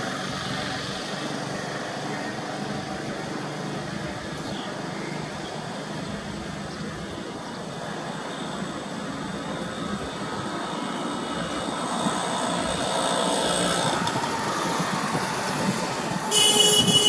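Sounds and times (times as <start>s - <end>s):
train rumble: 0.0s - 17.0s.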